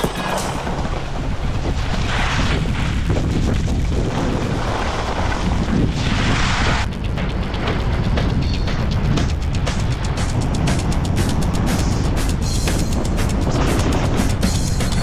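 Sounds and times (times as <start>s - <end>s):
wind buffeting microphone: 0.0s - 15.0s
skis hissing over snow: 1.6s - 6.9s.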